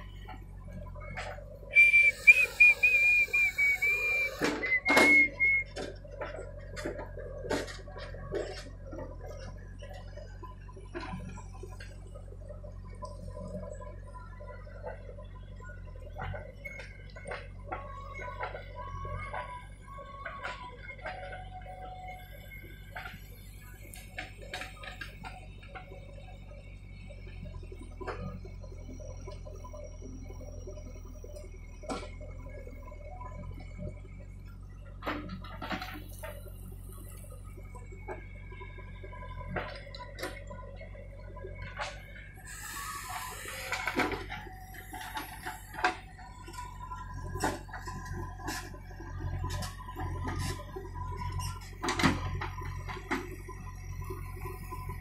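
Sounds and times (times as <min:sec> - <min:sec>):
diesel engine running: 0:00.0 - 0:55.0
high wavering whistle: 0:01.7 - 0:05.7
metal clanks and knocks: 0:04.4 - 0:09.6.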